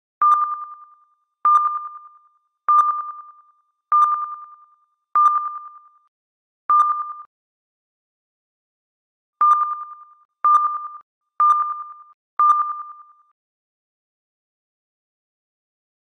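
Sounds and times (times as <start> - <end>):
sonar ping: 0.2 - 6.1, 6.7 - 7.3, 9.4 - 13.4.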